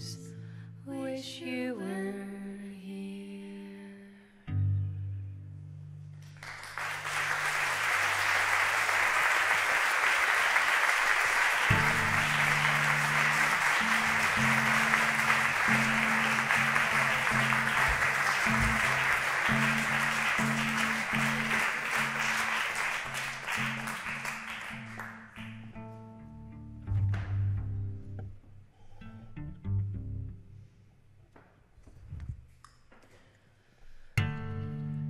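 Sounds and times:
audience applauding: 6.2 - 25.7
plucked cello low notes: 11.7 - 21.6, 25.5 - 30.6.

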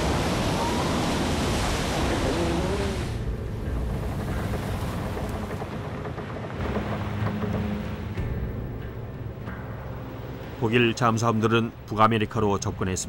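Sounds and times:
loud rushing water and spray: 0.0 - 8.4
wash of waves: 0.0 - 9.0
low rumble: 2.0 - 10.6.

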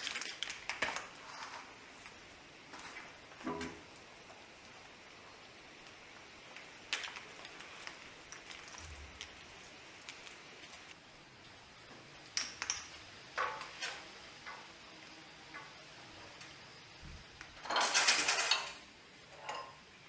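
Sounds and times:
plastic connectors clicking and rustling: 6.5 - 10.8.

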